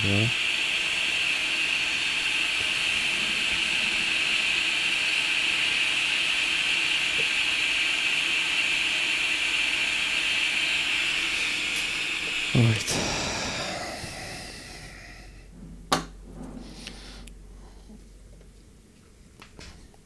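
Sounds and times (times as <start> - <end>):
hiss of blowing air: 0.0 - 15.5.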